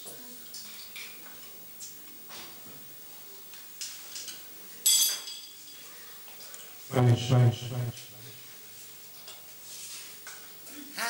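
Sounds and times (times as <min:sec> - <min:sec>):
tableware clinking: 0:04.2 - 0:05.9.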